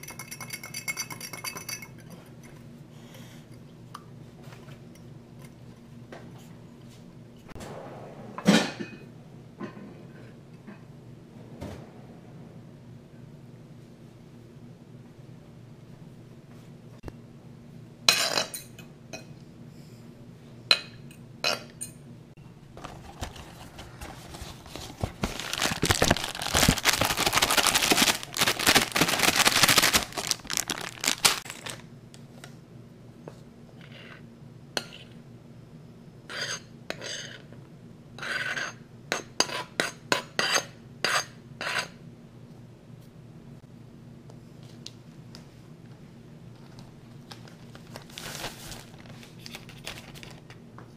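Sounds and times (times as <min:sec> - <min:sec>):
bag rustling and crinkling: 0:22.8 - 0:31.8, 0:47.2 - 0:50.4.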